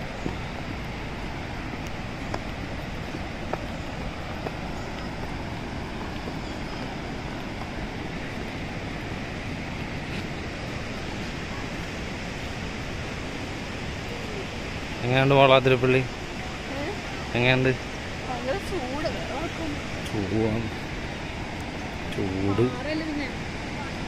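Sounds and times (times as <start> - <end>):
river water over rapids: 0.0 - 24.0
wind buffeting microphone: 0.0 - 24.0
footsteps on rock: 1.9 - 7.8.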